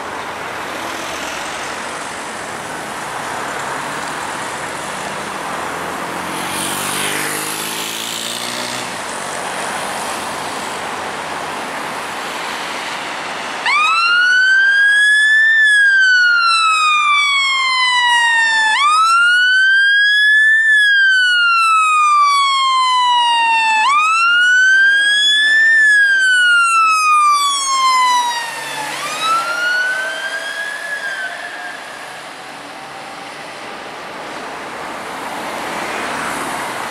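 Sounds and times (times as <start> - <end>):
road traffic: 0.0 - 36.9
fire engine wail siren: 12.2 - 36.9.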